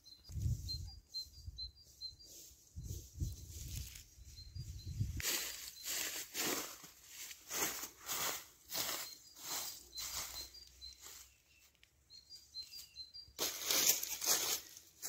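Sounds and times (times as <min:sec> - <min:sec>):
bird chirps: 0:00.0 - 0:07.3, 0:08.0 - 0:14.8
footsteps crunching dry leaves: 0:05.0 - 0:11.4, 0:13.4 - 0:15.0.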